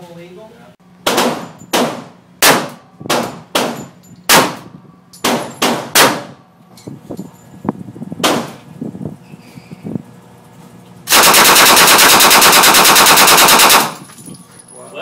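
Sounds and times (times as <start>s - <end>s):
handgun shots echoing: 11.1s - 14.0s.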